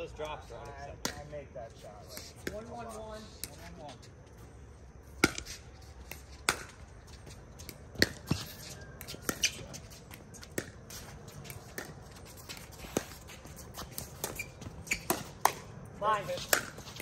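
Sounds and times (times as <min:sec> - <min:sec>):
ball bouncing on hard court: 0:02.4 - 0:02.7, 0:07.6 - 0:09.8, 0:10.4 - 0:15.7.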